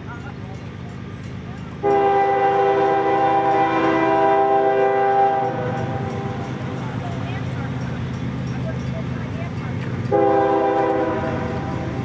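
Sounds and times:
locomotive horn blast: 0:01.8 - 0:06.0, 0:10.1 - 0:12.0.

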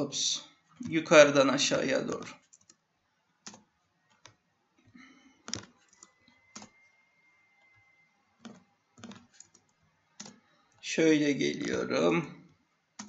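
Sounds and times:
computer keyboard keystrokes: 0:02.2 - 0:02.8, 0:03.4 - 0:04.4, 0:05.0 - 0:06.8, 0:08.4 - 0:10.4
mouse clicks: 0:03.4 - 0:04.4, 0:05.0 - 0:07.0, 0:07.6 - 0:10.4.

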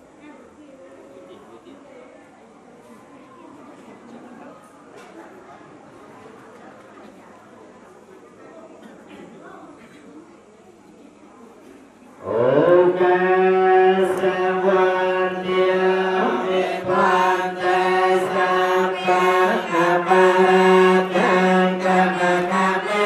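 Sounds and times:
monks chanting in unison: 0:12.2 - 0:23.0.

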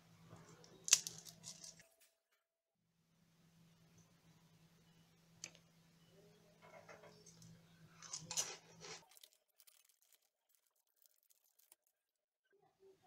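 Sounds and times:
crackling of cracker packets: 0:00.5 - 0:01.9, 0:07.2 - 0:12.2.

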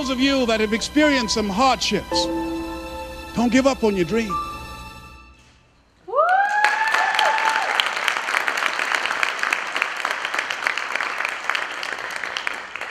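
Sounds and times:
high rising whoop: 0:06.0 - 0:07.9
audience applauding and cheering: 0:06.1 - 0:12.9.

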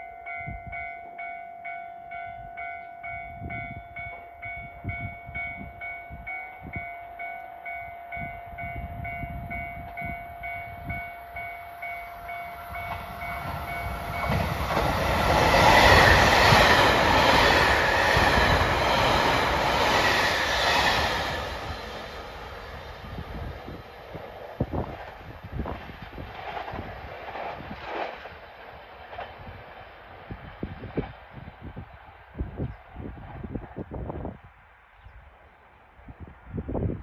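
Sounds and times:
train wheels rushing on rails: 0:10.8 - 0:34.1
wheels clacking over rail joints: 0:12.6 - 0:22.6.

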